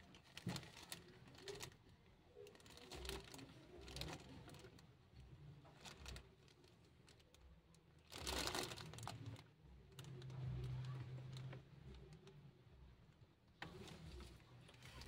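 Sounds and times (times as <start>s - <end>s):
plastic bag crinkling: 0.0s - 1.8s, 2.4s - 4.8s, 8.0s - 11.5s.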